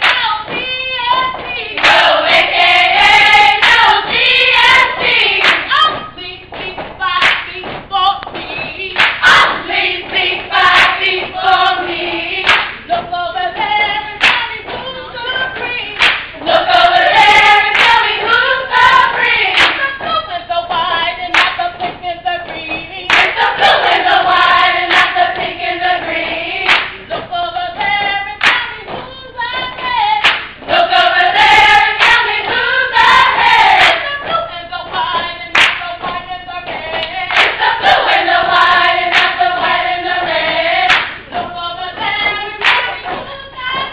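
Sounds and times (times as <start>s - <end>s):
hand claps: 0.0s - 2.5s, 3.5s - 11.3s, 12.4s - 16.5s, 17.6s - 18.2s, 19.1s - 24.0s, 24.9s - 25.5s, 26.2s - 30.6s, 32.0s - 32.6s, 33.8s - 38.2s, 39.1s - 39.7s, 40.8s - 43.9s
group of voices singing: 0.0s - 43.9s.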